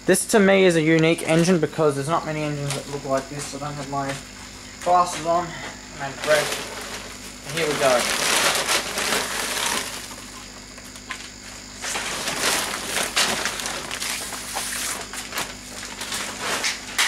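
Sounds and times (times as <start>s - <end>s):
plastic tarp rustling: 6.0s - 17.0s.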